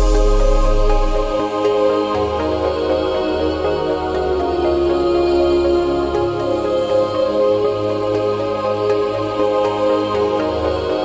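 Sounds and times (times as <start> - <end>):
steady bass: 0.0 - 1.5
calm synth chords: 0.0 - 11.0.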